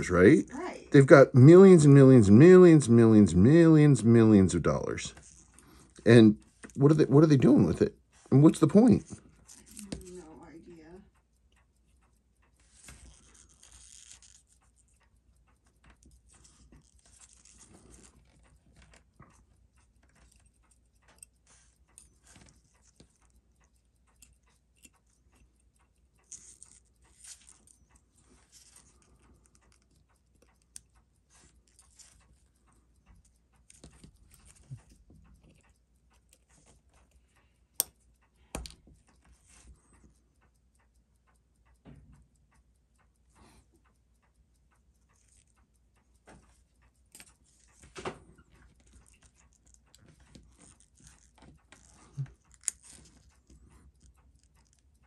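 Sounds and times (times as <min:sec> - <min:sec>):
small tools clicking and rustling: 0:12.7 - 0:14.9, 0:15.8 - 0:19.4, 0:26.2 - 0:27.8, 0:47.1 - 0:54.8.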